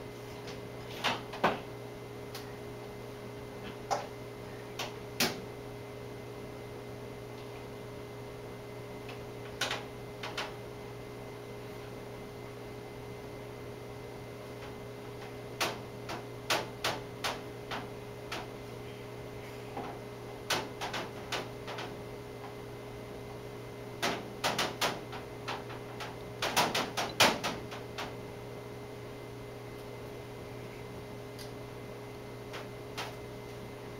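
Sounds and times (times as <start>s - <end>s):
steady hum: 0.0s - 33.9s.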